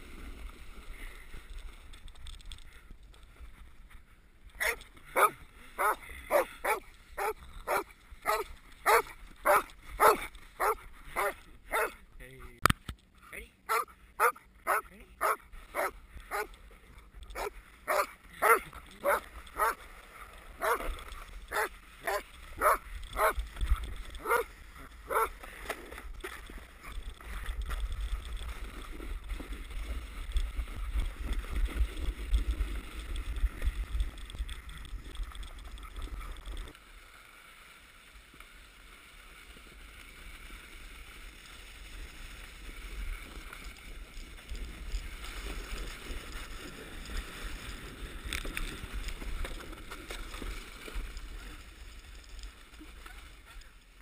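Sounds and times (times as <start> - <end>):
sled sliding over snow: 0.0 - 12.1, 13.7 - 54.0
dog barking: 4.6 - 12.0, 13.7 - 16.5, 17.4 - 19.8, 20.6 - 20.9, 21.5 - 23.4, 24.2 - 24.5.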